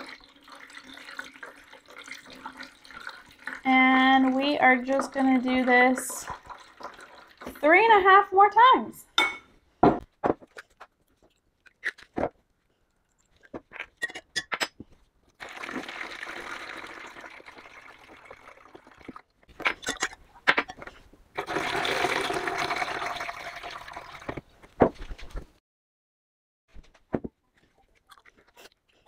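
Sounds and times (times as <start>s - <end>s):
water pouring from container: 0.0s - 7.7s, 15.4s - 19.3s, 21.4s - 24.5s.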